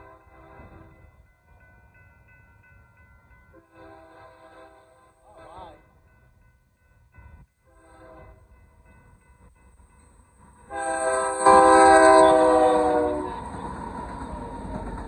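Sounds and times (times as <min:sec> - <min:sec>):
train rumbling past: 0:00.0 - 0:15.0
locomotive air horn blast: 0:03.6 - 0:05.5, 0:10.7 - 0:13.4.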